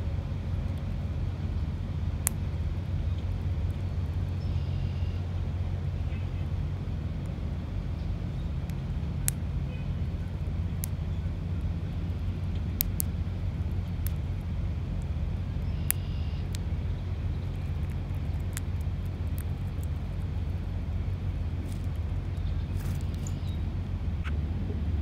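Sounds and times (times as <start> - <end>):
steady low rumble: 0.0 - 25.0
bird pecking on stone: 17.3 - 20.7, 21.4 - 23.4.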